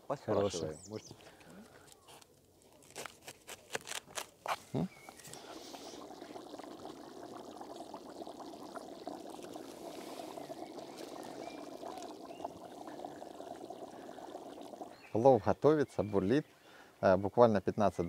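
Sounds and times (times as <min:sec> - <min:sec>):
food bubbling in a pot: 0:05.1 - 0:15.4.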